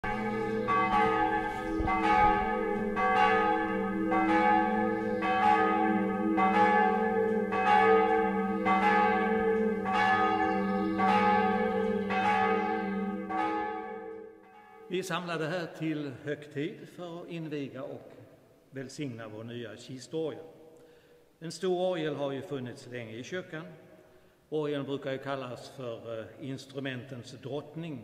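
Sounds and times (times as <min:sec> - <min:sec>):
church bells ringing: 0:00.0 - 0:15.3.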